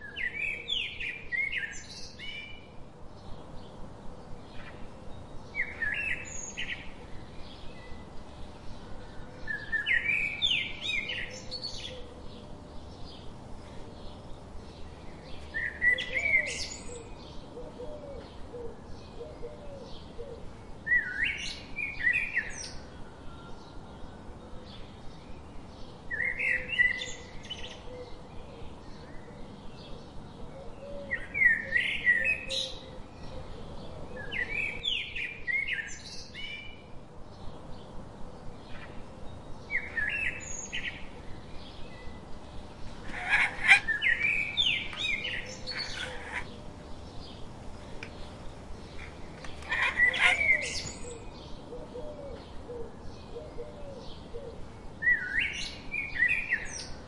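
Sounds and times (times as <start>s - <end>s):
bird chirping: 39.7s - 51.6s.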